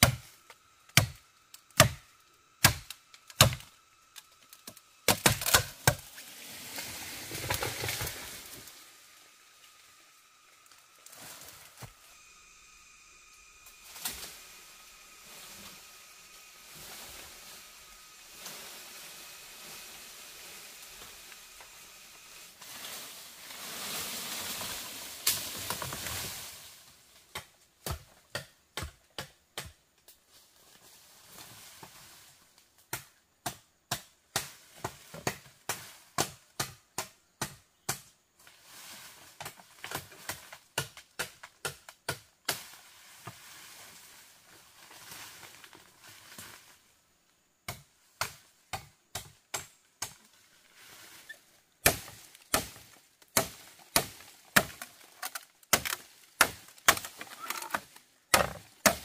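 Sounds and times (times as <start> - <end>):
rustling and scraping: 4.2 - 10.0, 10.6 - 12.3, 13.6 - 27.0, 42.6 - 47.0.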